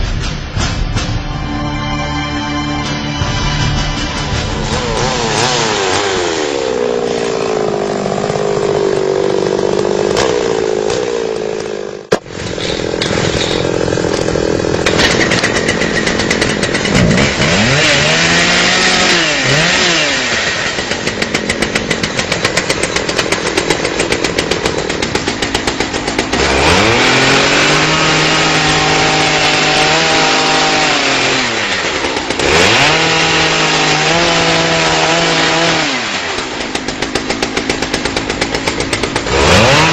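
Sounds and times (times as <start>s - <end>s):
chainsaw cutting wood: 4.5s - 39.9s.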